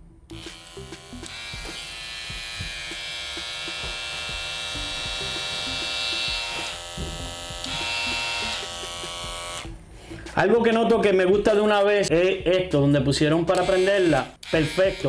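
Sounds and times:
trimmer buzzing: 0.3s - 9.8s.

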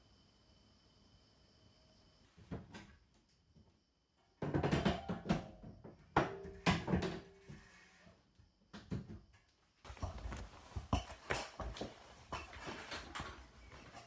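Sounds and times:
metal ladder knocking and clattering: 4.4s - 7.4s, 9.9s - 14.0s
person climbing a ladder: 8.7s - 14.0s.

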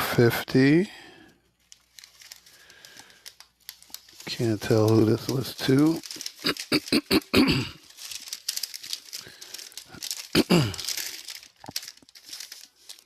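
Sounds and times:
paper receipts rustling: 0.2s - 13.0s
person coughing: 6.4s - 7.8s, 10.3s - 11.0s.

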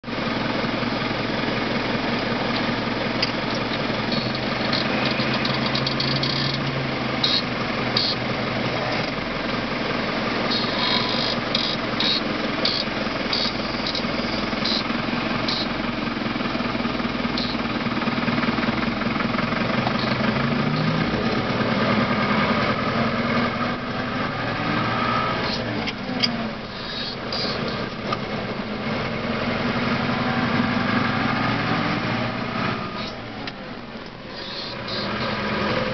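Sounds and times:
tractor diesel engine running: 0.0s - 35.9s.

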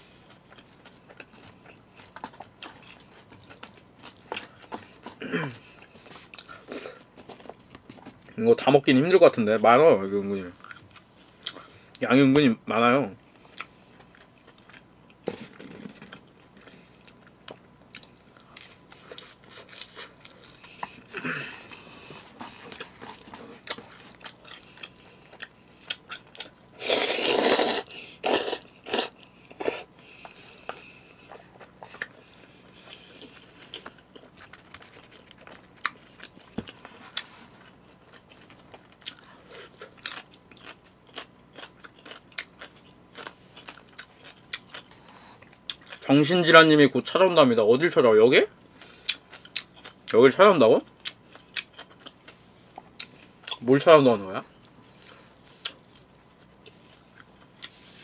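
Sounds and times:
person chewing crunchy food: 0.0s - 8.4s, 10.6s - 12.0s, 13.3s - 46.2s, 48.6s - 50.2s, 50.8s - 53.6s, 54.5s - 58.0s
loud noodle slurping: 26.8s - 29.9s.

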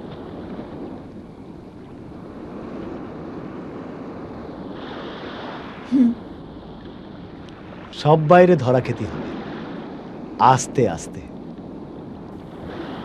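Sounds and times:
wind and water rushing: 0.0s - 13.0s
person murmuring: 5.9s - 6.2s.

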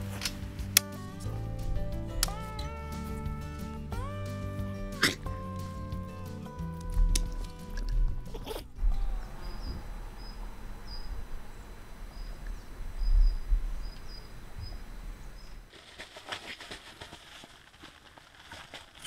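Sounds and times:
wind rumbling on microphone: 6.9s - 15.7s
dog moving on ground sheet: 15.7s - 19.0s.

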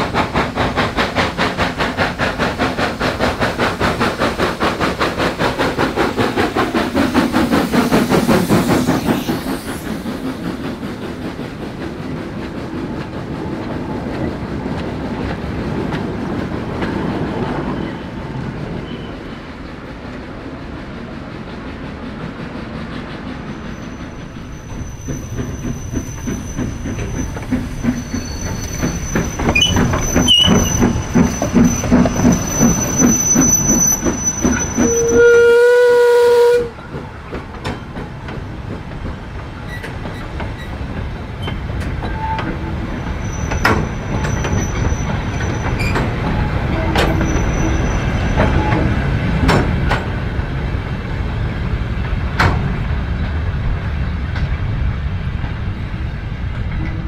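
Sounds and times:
locomotive exhaust beating: 21.6s - 50.3s
wheels clicking over rail joints: 36.8s - 50.2s.

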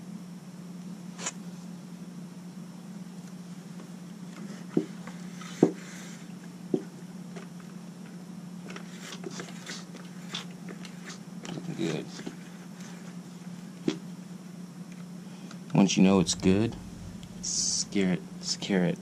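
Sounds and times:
low hum: 15.9s - 19.0s.

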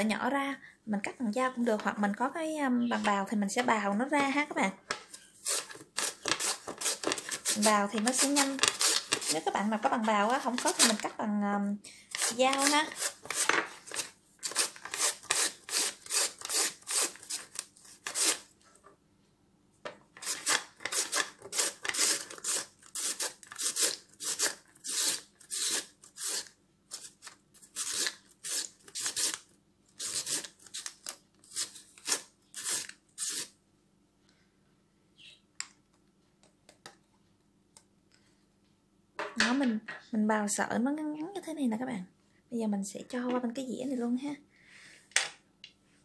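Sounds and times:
carrot scraping on slicer: 5.4s - 9.4s, 12.2s - 17.5s, 20.2s - 27.1s, 27.8s - 29.4s, 30.0s - 30.5s, 31.5s - 33.5s.

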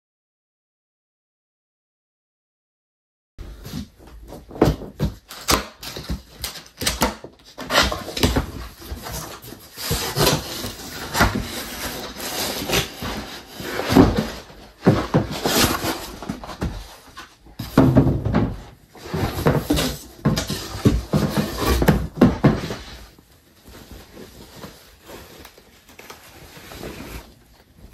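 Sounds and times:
cardboard box scraping and rustling: 7.6s - 17.8s, 18.6s - 27.9s.

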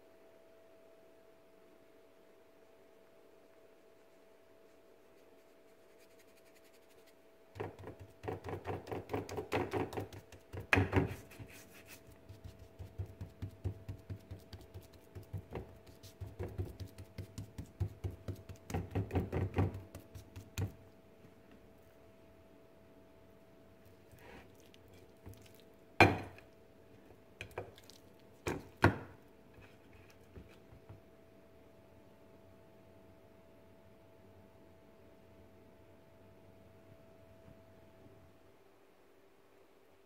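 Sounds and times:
hand patting raw meat: 12.2s - 20.8s.

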